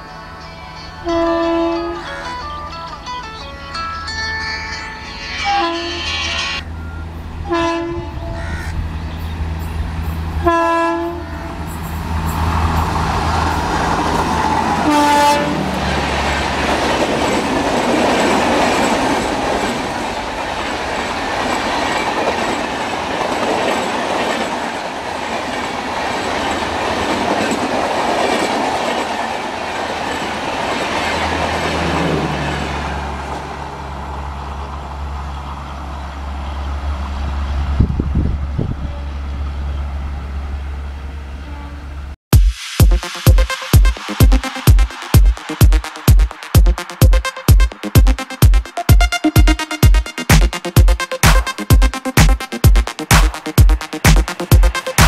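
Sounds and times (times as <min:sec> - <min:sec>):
train coaches rushing past: 0:00.0 - 0:42.1, 0:43.0 - 0:55.0
locomotive horn honks: 0:01.0 - 0:02.2, 0:05.4 - 0:06.3, 0:07.4 - 0:08.4, 0:10.4 - 0:11.6, 0:14.8 - 0:15.9, 0:41.3 - 0:42.1
train wheels on rails: 0:11.5 - 0:40.3, 0:43.0 - 0:55.0.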